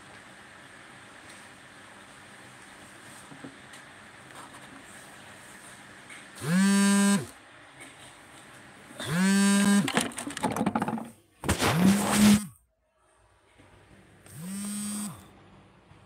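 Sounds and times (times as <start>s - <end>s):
phone vibration buzzing: 6.4s - 7.4s, 9.0s - 10.0s, 11.6s - 12.5s, 14.3s - 15.3s.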